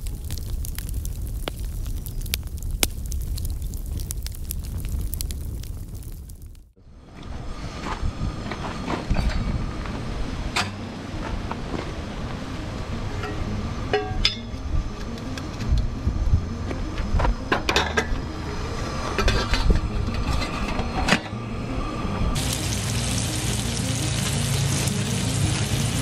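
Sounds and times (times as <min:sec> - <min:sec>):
metal pot and mug clinking: 0:13.2 - 0:14.5
bacon sizzling on a griddle: 0:22.4 - 0:26.0.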